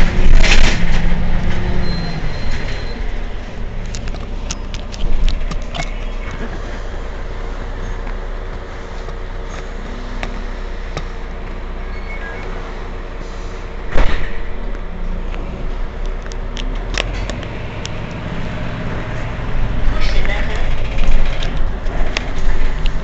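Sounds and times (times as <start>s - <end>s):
bus engine idling: 0.0s - 23.0s
sudden loud burst of noise: 13.8s - 14.6s.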